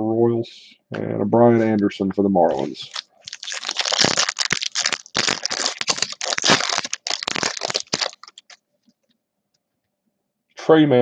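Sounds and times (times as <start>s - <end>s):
foil wrapper tearing and crinkling: 2.8s - 8.6s.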